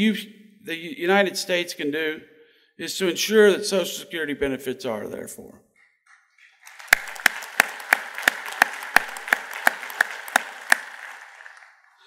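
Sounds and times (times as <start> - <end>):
audience applauding: 6.4 - 12.0
one person clapping loudly: 6.4 - 12.0.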